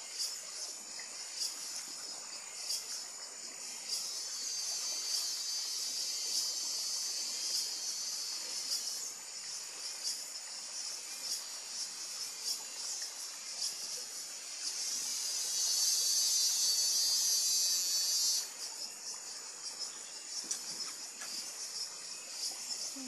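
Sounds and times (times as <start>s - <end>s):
insects calling: 0.0s - 23.0s.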